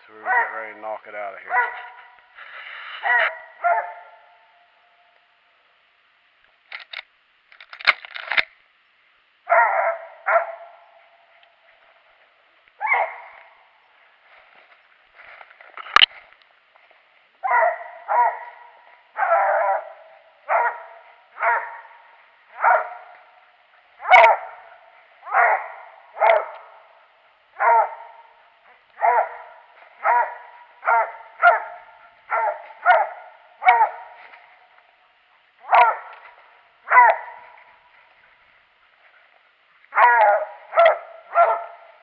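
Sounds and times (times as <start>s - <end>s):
dog barking: 0.2s - 0.8s, 1.4s - 2.2s, 3.0s - 4.4s, 9.5s - 10.9s, 12.8s - 13.5s, 17.4s - 23.4s, 24.0s - 26.8s, 27.6s - 34.2s, 35.6s - 37.7s, 39.9s - 42.0s
sharp cracks: 6.7s - 8.6s, 15.7s - 16.2s.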